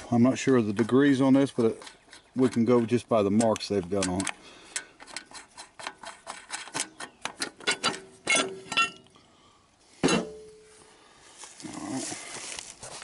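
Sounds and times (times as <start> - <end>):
metal clank: 1.6 - 9.1, 10.0 - 10.7
small metallic clinks: 7.5 - 9.2.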